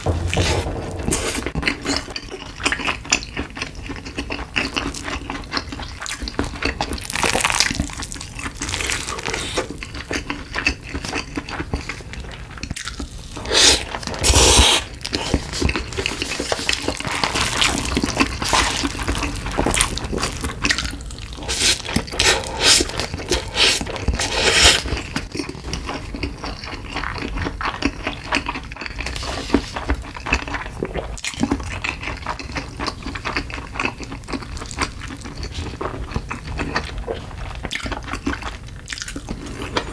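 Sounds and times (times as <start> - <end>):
wet chewing: 1.7 - 39.9
slurping noodles: 8.4 - 9.9, 13.3 - 25.2.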